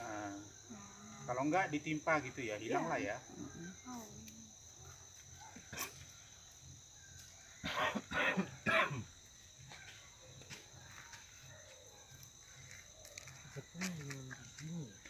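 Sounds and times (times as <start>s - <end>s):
person coughing: 7.7s - 9.1s.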